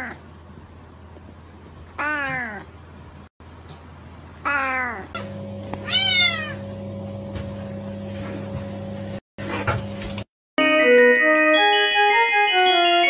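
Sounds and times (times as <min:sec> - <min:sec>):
cat meowing: 0:05.8 - 0:06.6.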